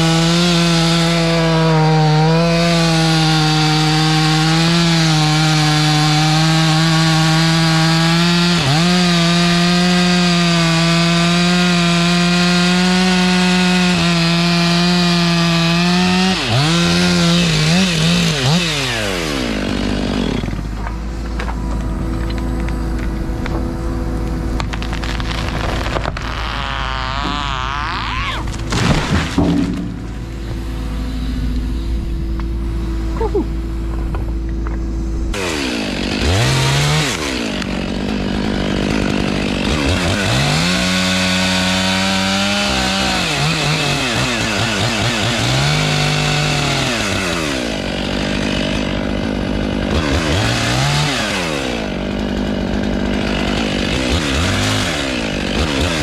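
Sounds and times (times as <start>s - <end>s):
chainsaw revving: 0.0s - 56.0s
excavator engine running: 16.8s - 40.1s
loud sharp knocks: 28.6s - 30.1s.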